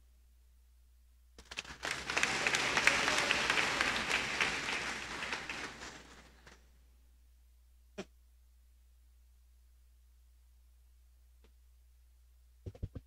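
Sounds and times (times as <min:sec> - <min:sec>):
audience applauding: 0:01.4 - 0:06.6.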